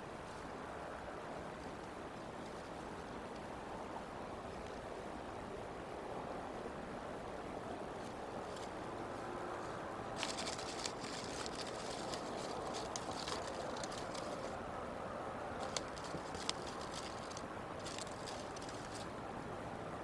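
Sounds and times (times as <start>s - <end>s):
steady background hiss: 0.0s - 20.0s
sticks crackling and rustling: 7.9s - 8.9s, 9.5s - 14.6s, 15.4s - 19.2s.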